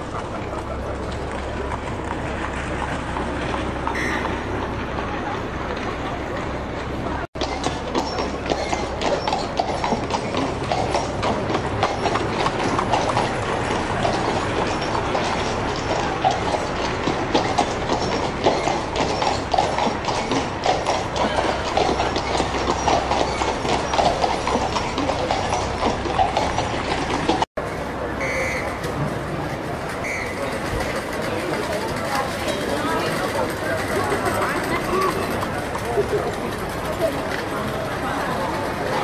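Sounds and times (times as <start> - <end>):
wagon wheels rattling: 0.0 - 39.0
horse hooves clip-clopping: 0.1 - 27.5.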